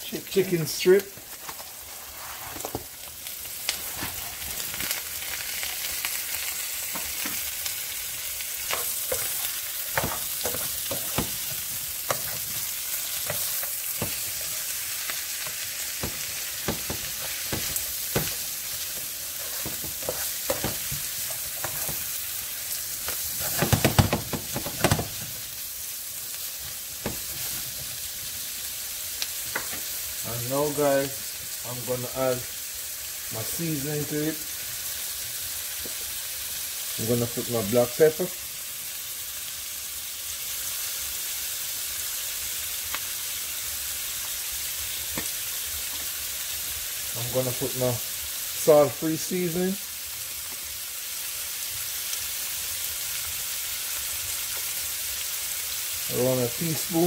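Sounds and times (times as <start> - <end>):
food sizzling in hot oil: 0.0 - 57.0
utensil scraping a pan: 16.0 - 22.1.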